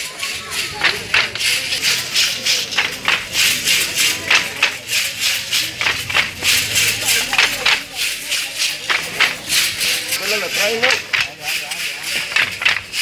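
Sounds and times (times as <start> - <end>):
hand rattles shaken rhythmically: 0.0 - 13.0.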